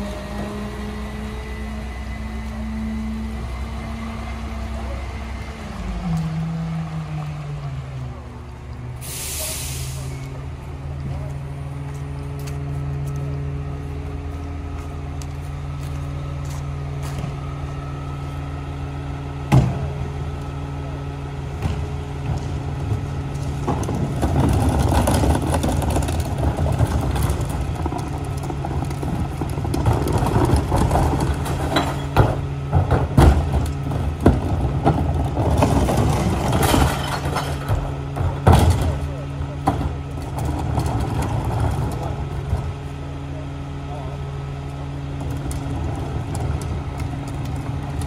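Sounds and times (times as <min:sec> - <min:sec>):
diesel truck engine running: 0:00.0 - 0:48.0
trash carts clattering: 0:21.5 - 0:48.0.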